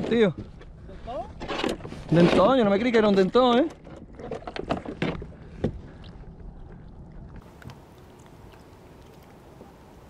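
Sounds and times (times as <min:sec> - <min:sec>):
low steady rumble: 0:05.2 - 0:10.0.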